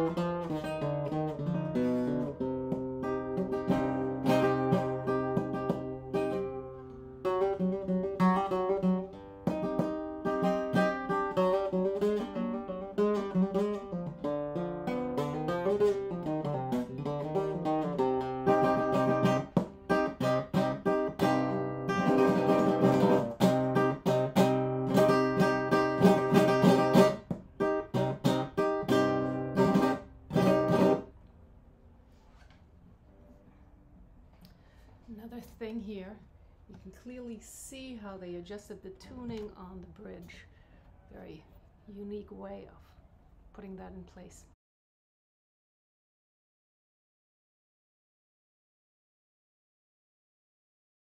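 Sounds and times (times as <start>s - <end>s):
acoustic guitar playing: 0.0s - 31.2s.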